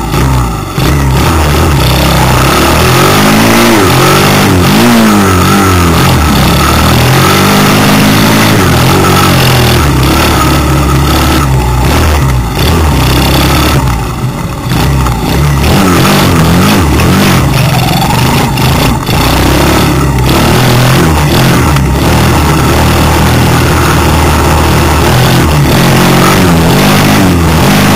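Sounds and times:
dirt bike engine: 0.0 - 27.9.

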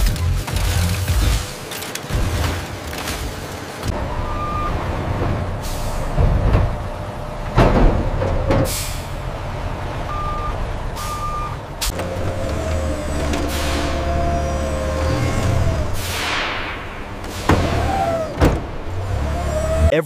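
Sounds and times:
truck engine rumbling: 0.0 - 20.0
reversing alarm beeps: 10.1 - 11.6.

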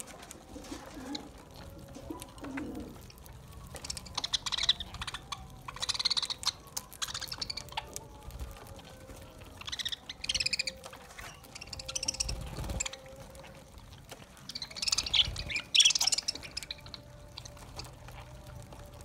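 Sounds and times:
budgerigars chattering and chirping: 3.8 - 8.0, 9.6 - 13.0, 14.4 - 18.0.

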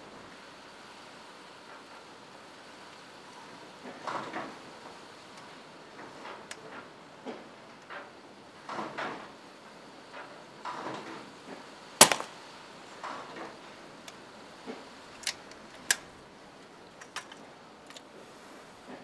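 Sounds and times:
air rifle shot: 12.0 - 12.4.

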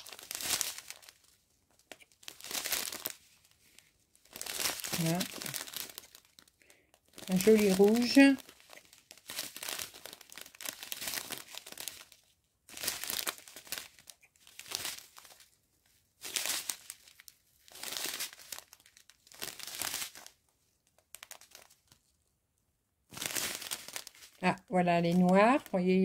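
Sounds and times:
plastic bags crinkling: 0.0 - 22.1, 23.1 - 26.0.

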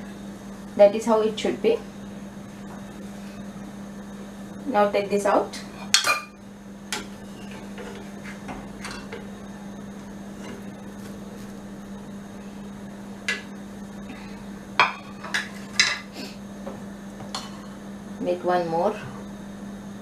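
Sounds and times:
steady low hum: 0.0 - 20.0
utensils clanking against pans: 5.8 - 9.3, 14.8 - 16.1.

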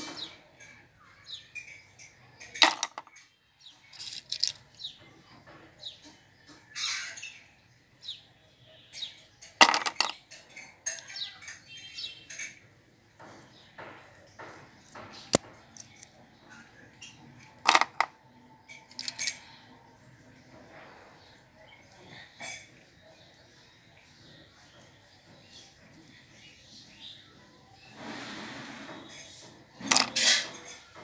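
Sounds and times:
plastic toy pieces clicking: 2.4 - 3.2, 3.9 - 4.7, 9.6 - 10.2, 17.5 - 18.1, 18.8 - 19.4, 29.8 - 30.3.

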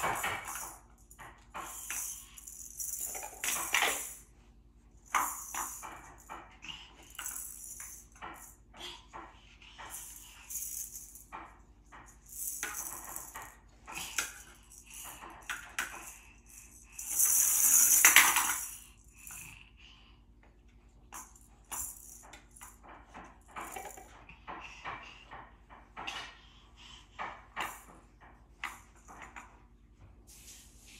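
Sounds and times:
balls rattling in plastic drum: 0.0 - 4.2, 5.0 - 6.4, 9.9 - 18.9, 21.2 - 24.2
wooden toy clicking and clattering: 0.0 - 4.2, 21.2 - 26.4.

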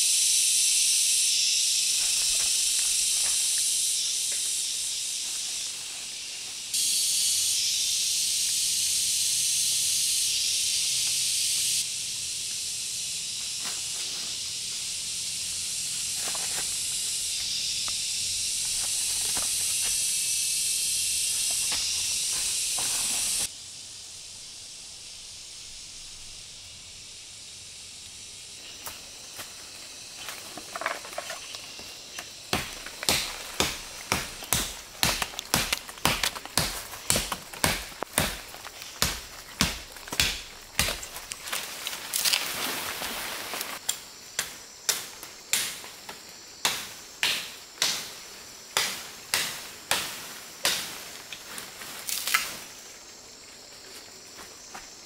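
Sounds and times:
insects hissing: 0.0 - 55.0
blade chopping sapling: 21.3 - 23.5, 31.0 - 42.5, 43.9 - 52.6.

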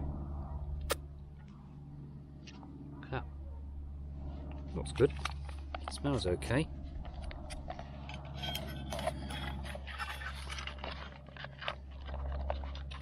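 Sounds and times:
foil pouch crinkling: 8.4 - 13.0.

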